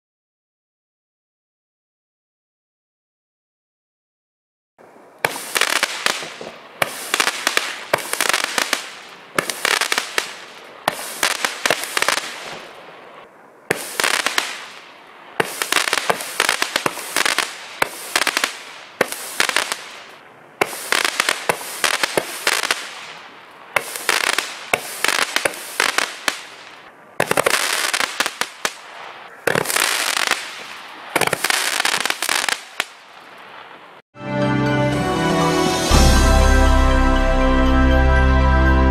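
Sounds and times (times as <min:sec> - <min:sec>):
firework shots crackling: 0:05.2 - 0:13.0, 0:13.7 - 0:33.8.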